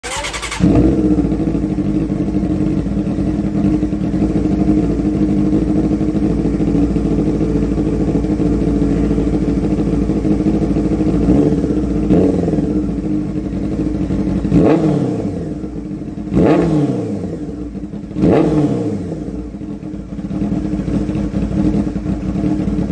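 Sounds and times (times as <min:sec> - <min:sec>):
motorcycle engine cranking: 0:00.0 - 0:01.6
motorcycle engine idling: 0:00.0 - 0:22.9.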